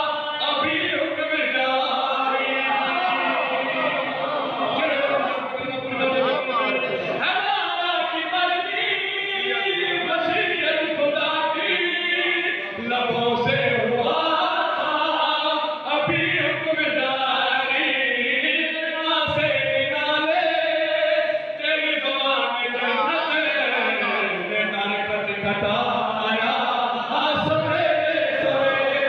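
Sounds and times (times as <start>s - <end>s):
man chanting into a microphone: 0.0s - 3.9s, 4.6s - 29.0s.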